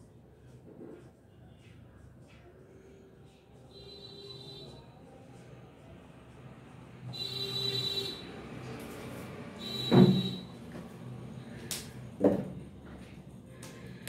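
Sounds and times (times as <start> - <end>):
loud knock: 9.9 - 10.4
thump: 9.9 - 10.4.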